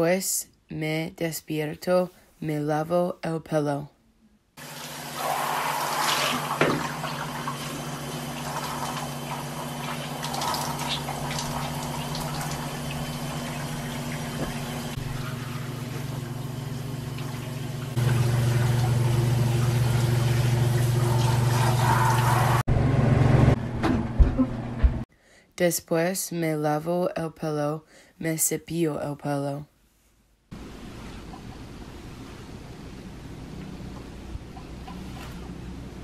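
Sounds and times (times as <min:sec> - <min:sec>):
water running from bathtub faucet: 0:04.6 - 0:22.7.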